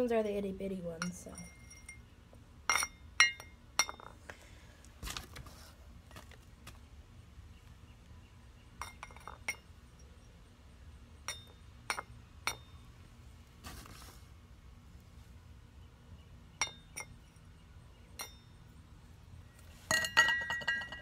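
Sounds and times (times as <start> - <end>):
metal trowel clinking on pots: 19.9 - 21.0.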